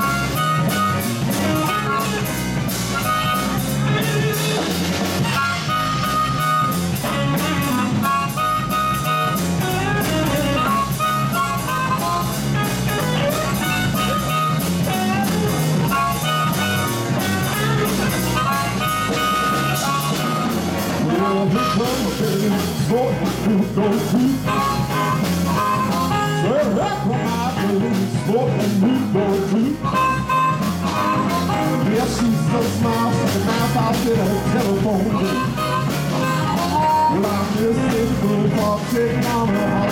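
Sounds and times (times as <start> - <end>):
bass: 0.0 - 39.9
drums: 0.0 - 39.9
electric guitars: 0.0 - 39.9
harmonica: 0.0 - 39.9
man singing: 19.6 - 39.9.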